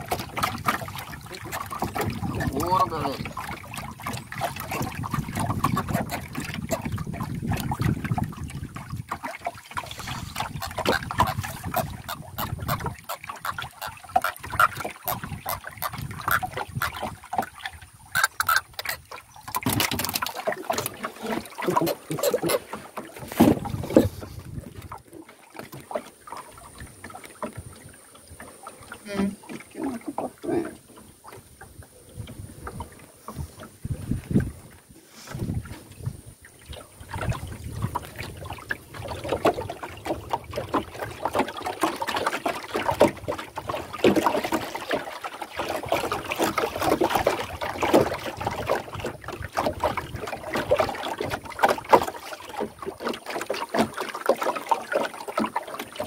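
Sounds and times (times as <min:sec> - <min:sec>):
fishing gear knocking on wooden canoe: 0:10.4 - 0:17.2, 0:21.7 - 0:24.9.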